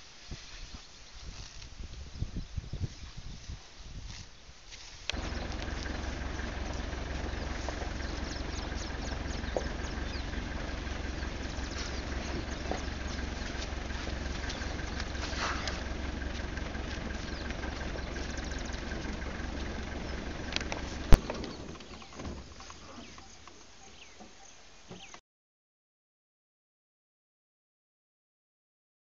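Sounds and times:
vehicle engine idling: 5.1 - 25.1.

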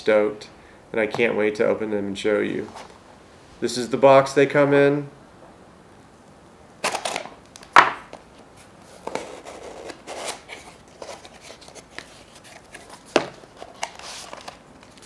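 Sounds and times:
cardboard flaps and packing rustling: 6.8 - 15.0.

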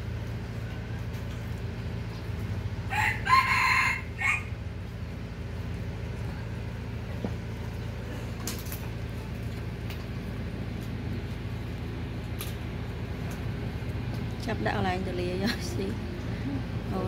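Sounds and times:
steady low hum: 0.0 - 17.0
rooster crowing: 2.9 - 4.6.

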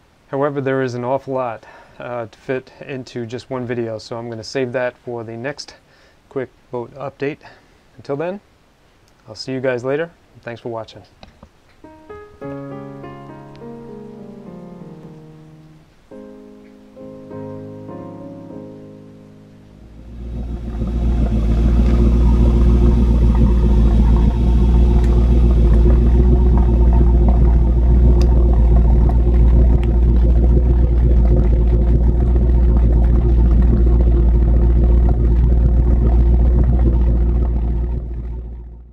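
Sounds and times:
boat engine deep rumble: 19.8 - 38.9.

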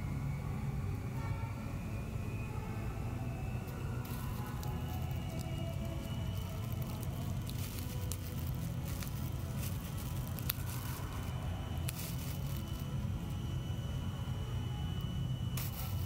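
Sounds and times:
steady low rumble: 0.0 - 16.0
plastic bag crinkling: 4.0 - 13.4, 15.6 - 16.0.

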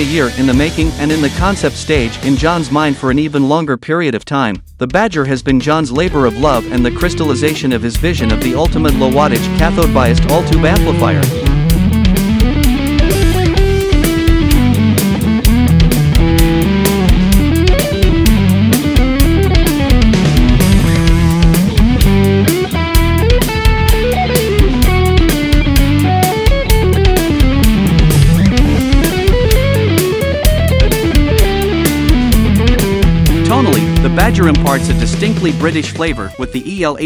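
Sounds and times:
backing track bass and drums: 0.0 - 3.3, 4.5 - 37.0
electric guitar melody: 6.1 - 36.7.

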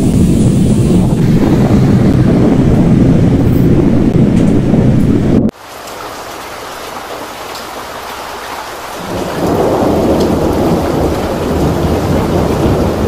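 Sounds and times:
heavy rain hissing: 0.0 - 4.8, 5.5 - 13.0
deep thunder rumble: 0.0 - 5.6, 8.9 - 13.0.

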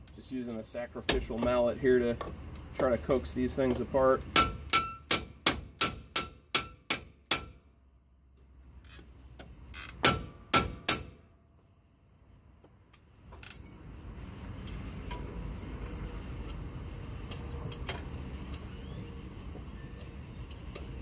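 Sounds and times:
mallet striking metal parts: 4.3 - 7.6.

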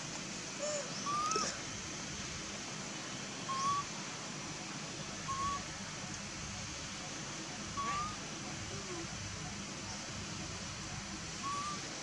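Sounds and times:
steady high hiss: 0.0 - 12.0
whistle-like animal calls: 0.6 - 1.6, 5.3 - 5.6, 7.8 - 8.2, 11.4 - 11.9.

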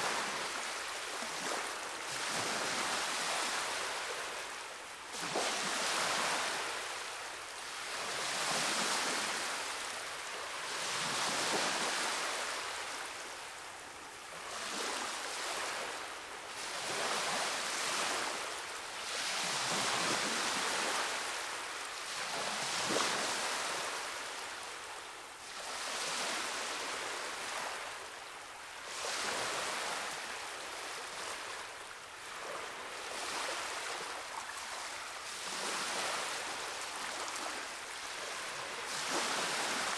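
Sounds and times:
surf washing against rocks: 38.3 - 39.9.

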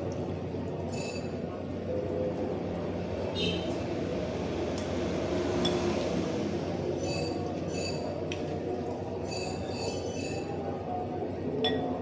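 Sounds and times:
high ringing squeaks: 0.9 - 1.3, 9.2 - 10.5
cutlery scraping ceramic bowl: 9.2 - 10.6.

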